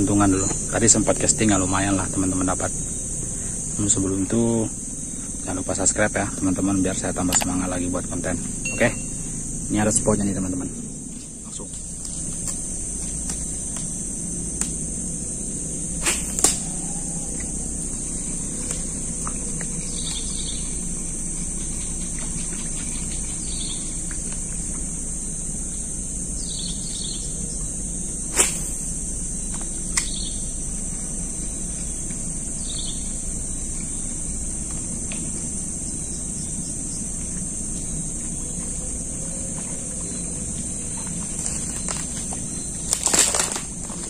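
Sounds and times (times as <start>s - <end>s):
insects buzzing: 0.0s - 44.0s
bird chirps: 8.6s - 9.3s.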